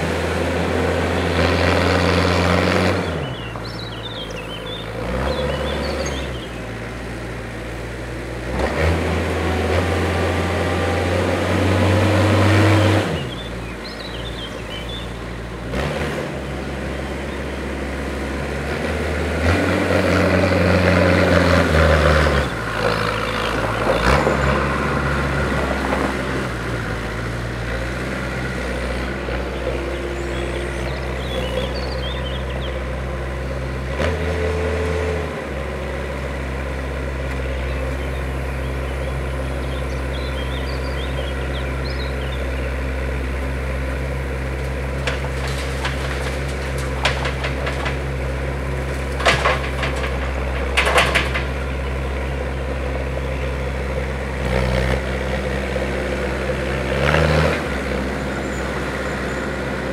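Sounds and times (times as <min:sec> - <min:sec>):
diesel loader engine revving: 0:00.0 - 0:59.9
faint birdsong: 0:02.9 - 0:07.8, 0:11.8 - 0:15.8, 0:16.6 - 0:18.4, 0:22.3 - 0:34.0, 0:35.6 - 0:59.9.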